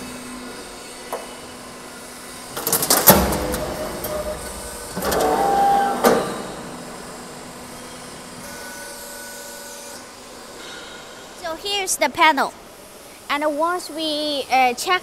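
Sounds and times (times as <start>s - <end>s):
roll forming machine humming: 0.0s - 10.6s
metallic clattering and banging: 2.6s - 6.8s.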